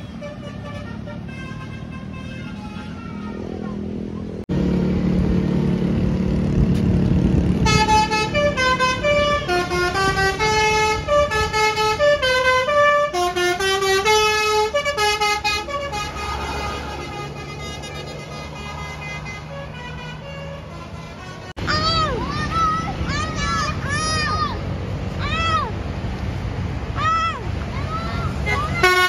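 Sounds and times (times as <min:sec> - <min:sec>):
bus musical horn tune: 0:00.0 - 0:03.4, 0:07.6 - 0:21.6, 0:28.4 - 0:29.0
bus engine rumble: 0:00.0 - 0:29.0.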